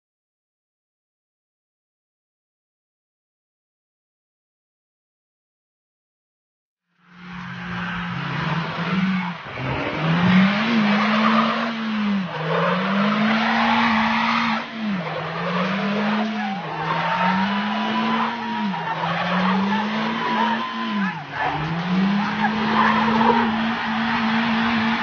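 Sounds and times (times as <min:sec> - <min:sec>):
car engine revving: 0:07.0 - 0:25.0
tyres squealing on dirt: 0:07.4 - 0:25.0.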